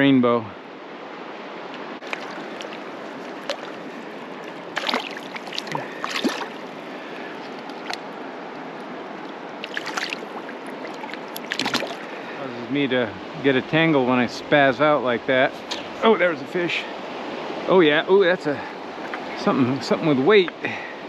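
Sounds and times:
river running over cobbles: 0:01.9 - 0:16.7
fish splashing in water: 0:02.0 - 0:08.1, 0:09.6 - 0:12.4.

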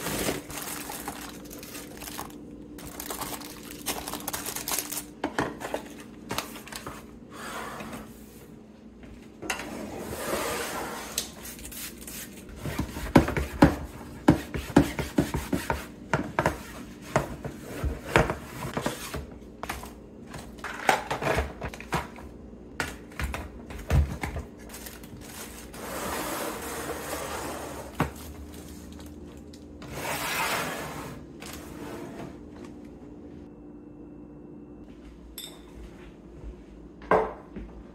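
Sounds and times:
plastic wrap rustling: 0:00.0 - 0:06.9, 0:24.6 - 0:26.0.

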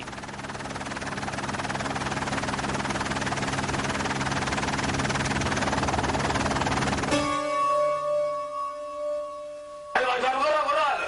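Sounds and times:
held musical chord: 0:07.0 - 0:11.0.

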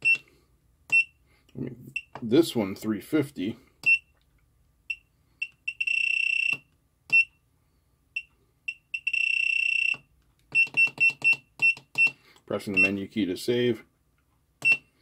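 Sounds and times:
long beeps: 0:08.2 - 0:12.1.

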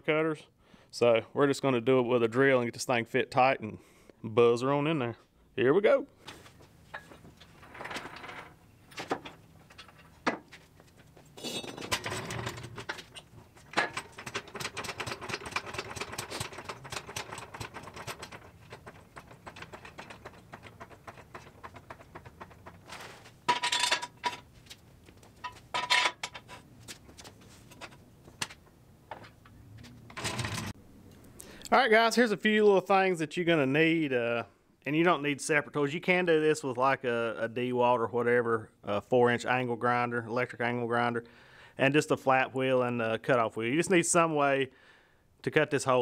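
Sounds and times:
metal clanks: 0:11.4 - 0:24.5, 0:25.2 - 0:26.6.

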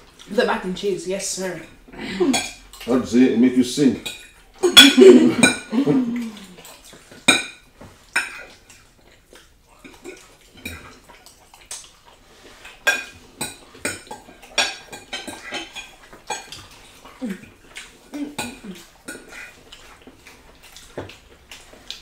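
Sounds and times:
forks clinking on plates: 0:04.0 - 0:05.7, 0:12.8 - 0:16.8
person humming: 0:05.7 - 0:06.6.

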